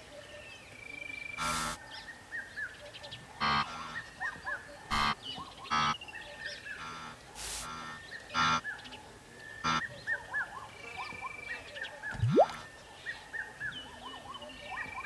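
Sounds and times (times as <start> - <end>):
birds chirping: 0.0 - 15.0
wildebeest honking calls: 1.4 - 1.8, 3.4 - 6.0, 6.6 - 8.7, 9.6 - 9.9.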